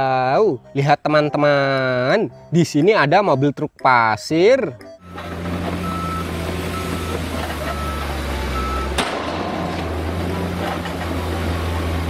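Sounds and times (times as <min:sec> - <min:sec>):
diesel truck engine running: 0:05.0 - 0:12.0.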